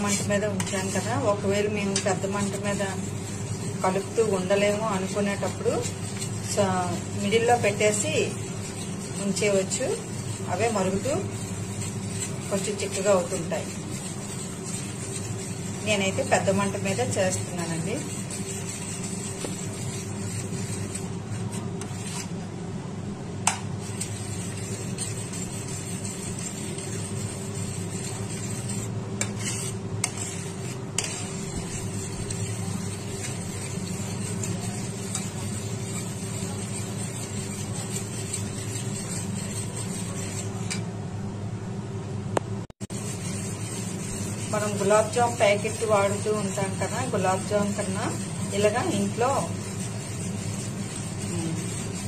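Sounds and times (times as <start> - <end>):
spatula scraping a pan: 0.0 - 22.4, 23.8 - 40.9, 42.8 - 52.0
milk bubbling at a boil: 30.1 - 40.6.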